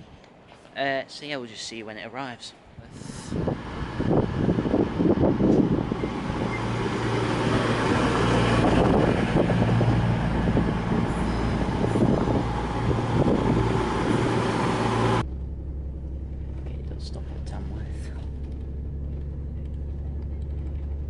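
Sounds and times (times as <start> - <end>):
train on rails: 3.0 - 15.3
diesel engine drone: 3.0 - 21.0.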